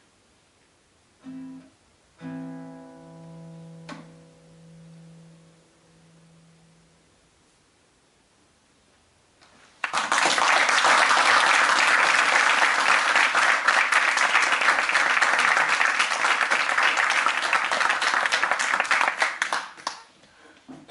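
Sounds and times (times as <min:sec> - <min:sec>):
audience applauding: 0:09.8 - 0:20.1.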